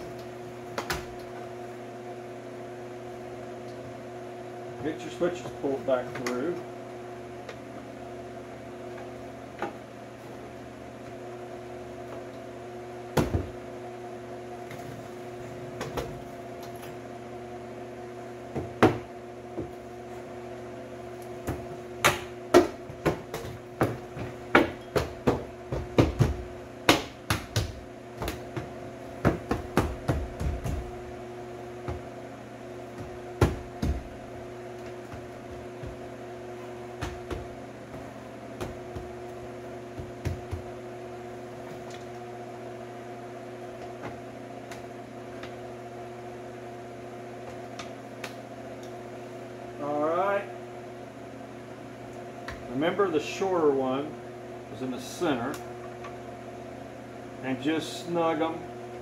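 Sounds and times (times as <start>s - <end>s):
steady hum: 0.0s - 59.0s
door panel knocks and thumps: 21.5s - 31.0s, 33.0s - 34.2s.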